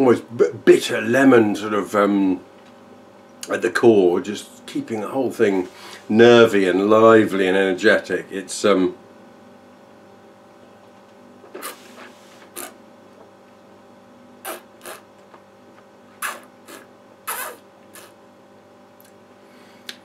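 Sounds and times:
mouth smacks and breaths: 0:11.6 - 0:12.8, 0:14.5 - 0:15.0, 0:16.2 - 0:18.2
person sipping wine: 0:11.6 - 0:12.8.

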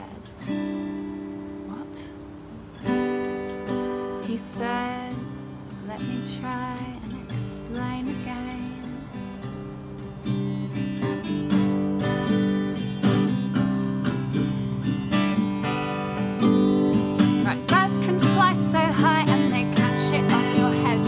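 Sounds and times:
woman singing: 0:00.0 - 0:00.4, 0:04.2 - 0:09.2, 0:17.2 - 0:21.0
acoustic guitar strumming: 0:00.0 - 0:21.0.

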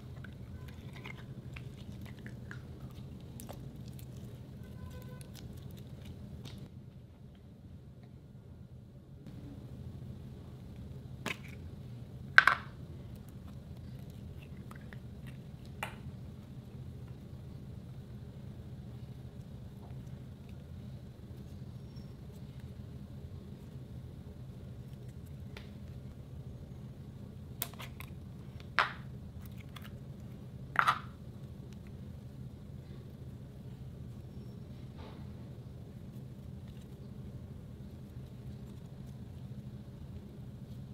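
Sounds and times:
slime squelching: 0:00.0 - 0:06.6
low steady hum: 0:00.0 - 0:40.9.

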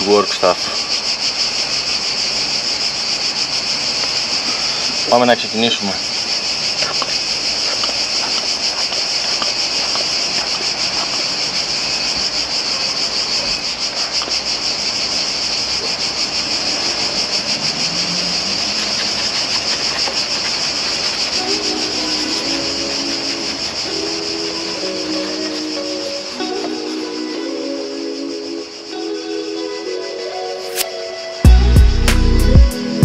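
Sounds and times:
brush scrubbing plastic: 0:06.8 - 0:11.6, 0:18.5 - 0:26.0
music with held notes: 0:21.4 - 0:33.0.

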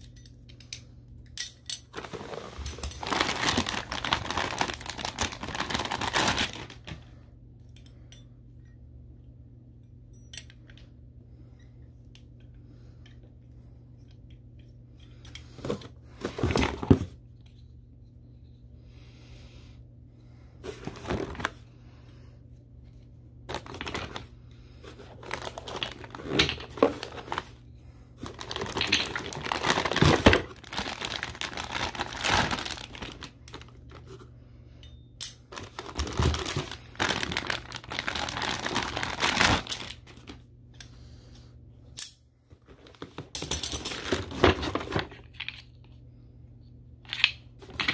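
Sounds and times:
plastic bags crinkling: 0:01.9 - 0:07.0, 0:23.5 - 0:24.3, 0:24.9 - 0:27.6, 0:28.2 - 0:34.2, 0:35.5 - 0:40.4.

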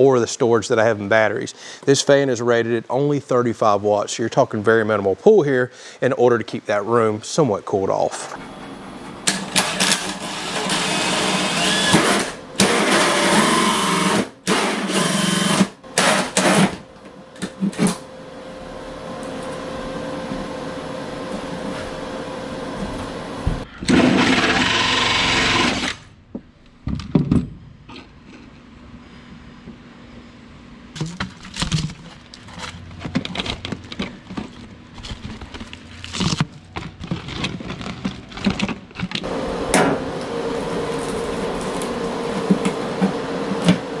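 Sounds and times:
power drill boring into wall: 0:09.5 - 0:16.8, 0:23.8 - 0:26.1.

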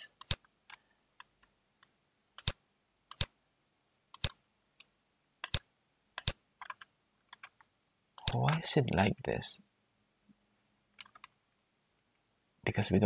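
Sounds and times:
computer mouse clicks: 0:00.2 - 0:01.3, 0:02.4 - 0:03.3, 0:04.1 - 0:08.6.

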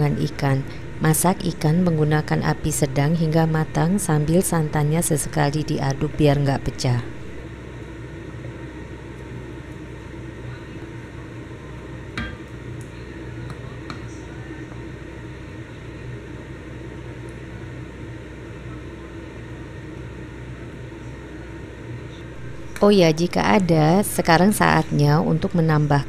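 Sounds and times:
steady low hum: 0:00.0 - 0:26.0
pot cooking on stove: 0:07.1 - 0:20.5.

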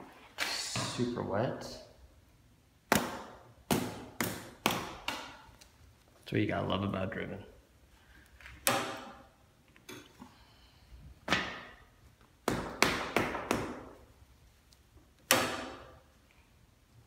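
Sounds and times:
sharp knocks of hard objects: 0:02.9 - 0:05.5, 0:08.6 - 0:09.2, 0:12.4 - 0:14.0, 0:15.3 - 0:16.0.

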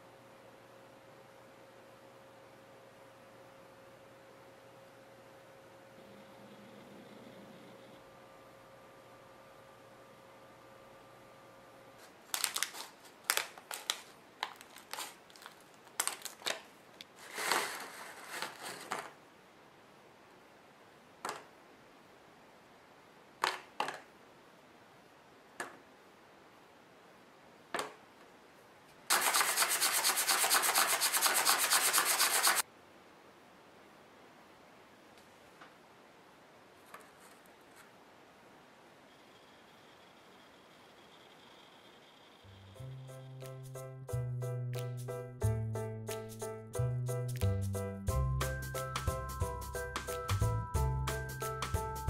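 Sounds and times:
candies clicking in plastic pouch: 0:12.3 - 0:19.1
candies rattling in a box: 0:12.4 - 0:16.6, 0:17.2 - 0:19.1.

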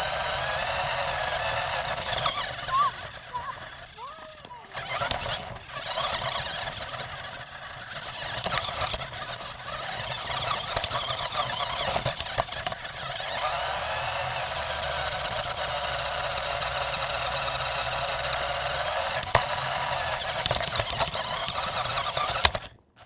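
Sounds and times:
toy truck motor and wheels: 0:00.0 - 0:23.0.

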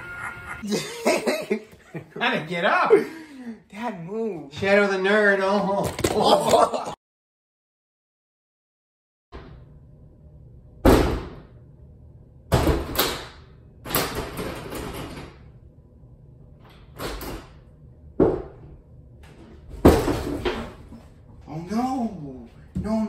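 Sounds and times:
door rattling: 0:13.9 - 0:15.4
banging on a door: 0:19.7 - 0:20.7.

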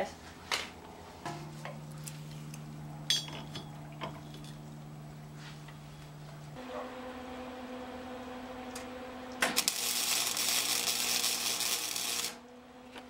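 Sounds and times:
steady low hum: 0:00.0 - 0:13.0
welding arc crackling: 0:09.4 - 0:12.4.

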